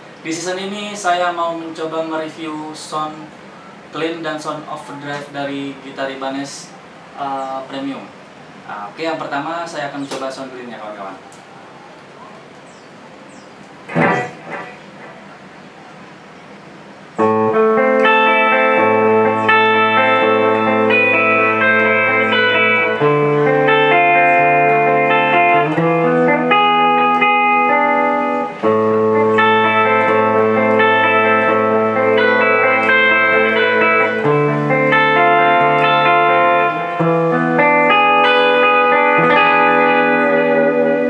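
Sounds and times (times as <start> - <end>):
clean electric guitar arpeggios: 13.9 - 15.2, 17.2 - 41.0.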